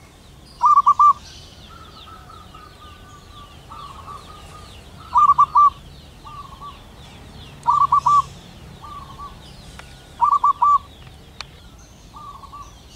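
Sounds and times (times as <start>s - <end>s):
faint high chirping: 0.0s - 12.9s
dove cooing: 0.6s - 6.8s, 7.6s - 9.4s, 10.2s - 11.0s, 12.1s - 12.8s.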